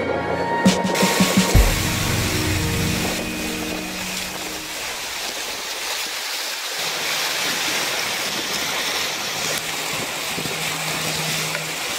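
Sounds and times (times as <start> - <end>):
water rushing past hulls: 0.7 - 11.9
outboard motor humming: 0.9 - 5.6, 9.4 - 11.9.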